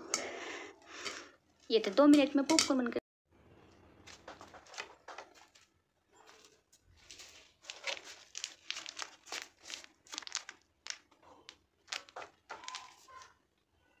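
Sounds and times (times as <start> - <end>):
plastic packet crinkling: 7.0 - 13.4.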